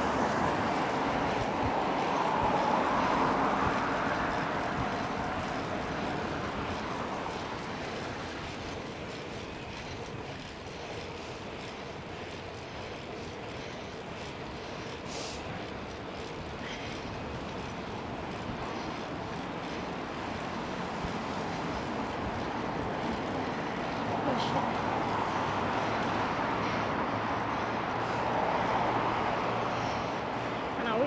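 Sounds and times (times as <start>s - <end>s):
cars passing: 0.0s - 31.0s
road noise: 0.0s - 31.0s.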